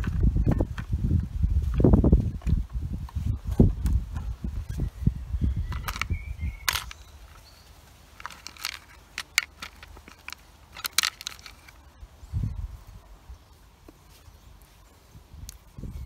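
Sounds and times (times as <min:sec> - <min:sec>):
tools clicking and rustling: 0:05.7 - 0:11.9.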